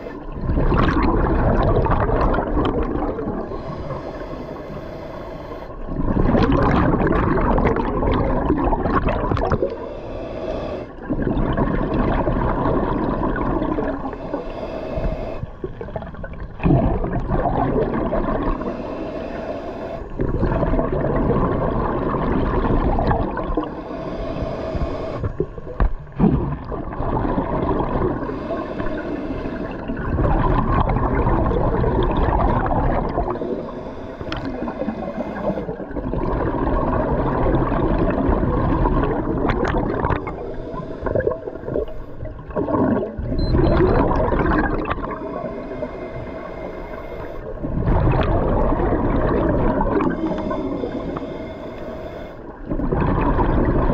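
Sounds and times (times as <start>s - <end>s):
bubbling exhalations underwater: 0.0s - 3.6s, 5.9s - 9.8s, 11.0s - 14.1s, 15.6s - 18.6s, 20.2s - 23.8s, 25.2s - 28.3s, 29.8s - 33.6s, 34.3s - 45.4s, 47.5s - 50.9s, 52.6s - 53.9s
diver breathing through regulator: 3.4s - 6.0s, 9.6s - 11.1s, 13.9s - 15.8s, 17.9s - 20.2s, 23.3s - 26.2s, 27.7s - 30.3s, 32.6s - 36.3s, 40.0s - 43.1s, 45.1s - 48.6s, 49.2s - 52.8s.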